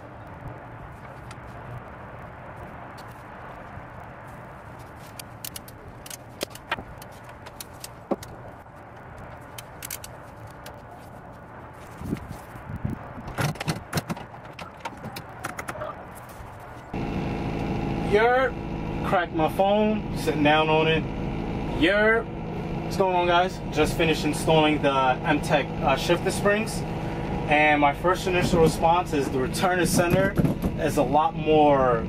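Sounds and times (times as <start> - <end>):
low hum: 14.4 - 32.0
car engine at high idle: 17.0 - 31.8.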